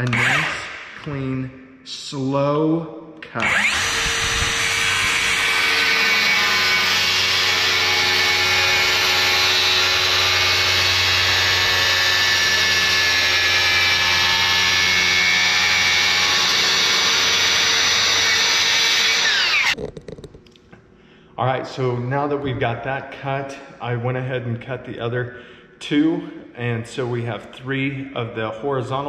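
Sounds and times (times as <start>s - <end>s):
circular saw cutting wood: 0.0s - 0.8s, 3.2s - 19.8s.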